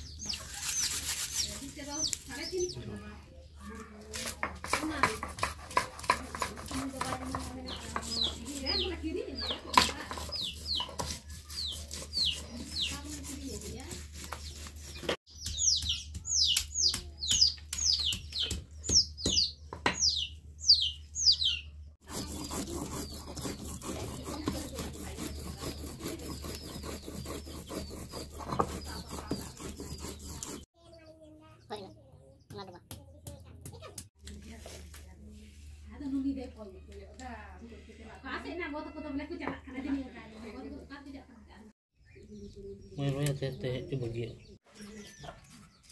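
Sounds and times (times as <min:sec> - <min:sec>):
chicks peeping: 0:00.0 - 0:03.5, 0:07.6 - 0:13.2, 0:14.3 - 0:24.9, 0:25.7 - 0:31.1, 0:42.0 - 0:45.9
stone pounding on wooden block: 0:04.4 - 0:08.2.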